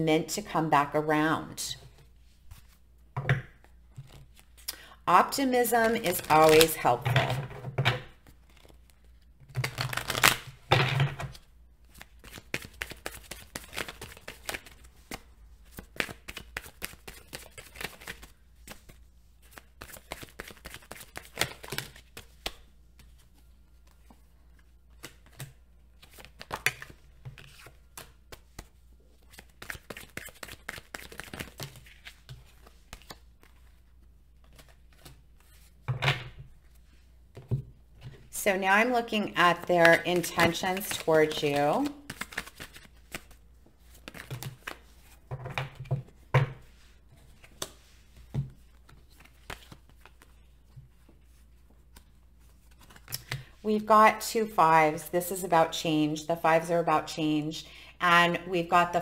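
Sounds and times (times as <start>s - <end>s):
cards being shuffled: 4.0s - 4.7s, 5.8s - 7.4s, 8.2s - 10.5s, 11.3s - 33.8s, 34.4s - 35.8s, 39.6s - 46.2s, 46.8s - 53.5s.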